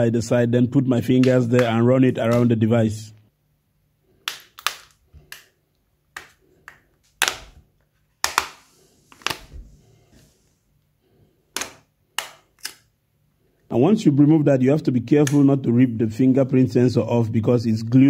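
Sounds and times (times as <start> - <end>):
plastic phone cover clips popping: 4.2 - 5.5, 7.1 - 8.6, 9.2 - 9.5, 11.5 - 12.9.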